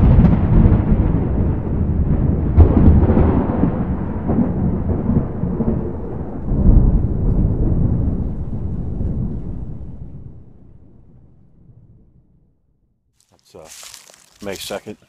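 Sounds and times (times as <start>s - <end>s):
thunder cracks: 0.0s - 11.0s
thunder rumbling: 0.0s - 12.2s.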